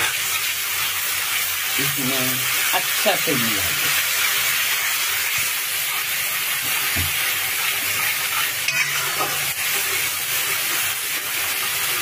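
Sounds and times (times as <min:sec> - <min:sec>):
food frying in oil: 0:00.0 - 0:12.0
spatula scraping a wok: 0:03.8 - 0:12.0.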